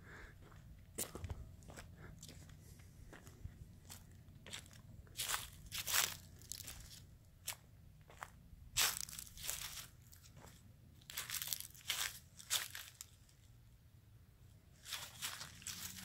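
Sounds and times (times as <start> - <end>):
footsteps crunching dry leaves: 3.8 - 7.6, 8.8 - 13.3, 14.8 - 16.0.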